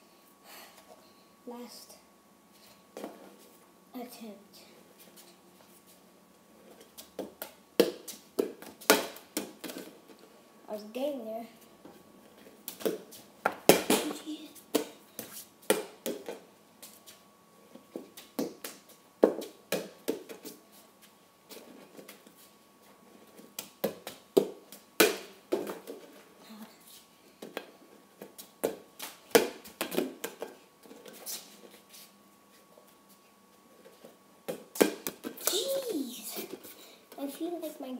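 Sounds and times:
bare feet slapping floor: 0:12.6 - 0:17.2.

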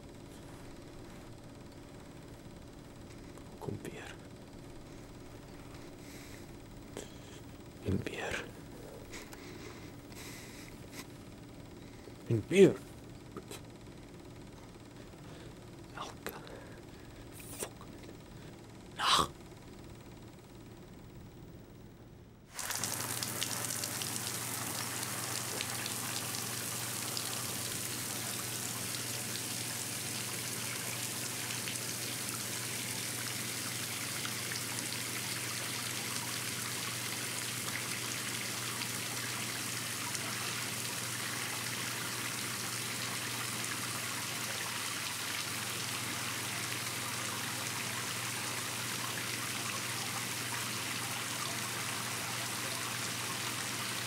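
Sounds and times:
low steady hum: 0:00.0 - 0:54.0
shower water spraying: 0:22.5 - 0:54.0.

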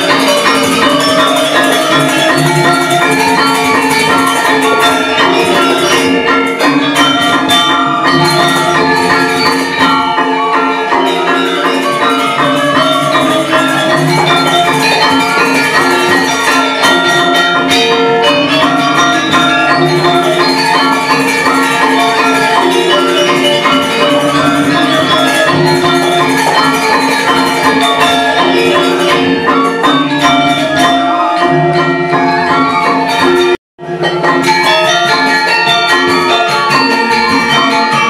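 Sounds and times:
gamelan metallophones ringing: 0:00.0 - 0:38.0.

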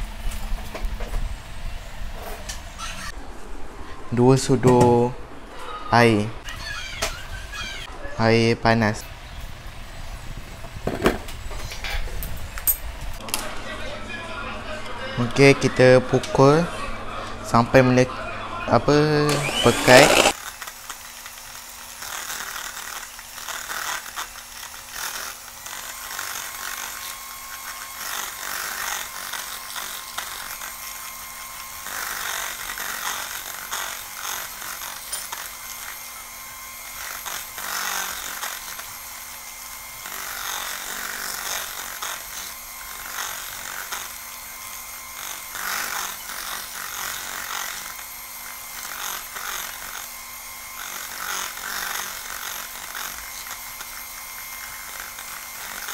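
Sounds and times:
beaters churning foam: 0:19.2 - 0:55.9
electric hand mixer whirring: 0:19.2 - 0:55.9.

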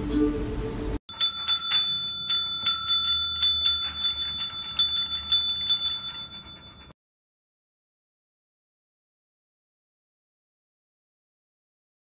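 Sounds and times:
service bell dinging: 0:01.1 - 0:07.0.

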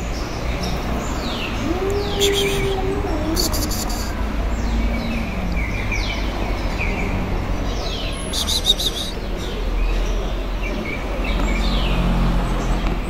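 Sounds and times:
small birds chirping: 0:00.0 - 0:13.0.

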